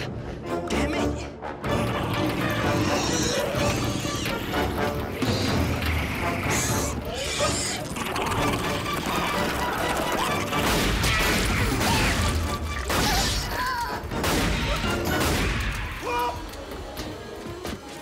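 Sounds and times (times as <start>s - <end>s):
dramatic film score: 0.0s - 18.0s.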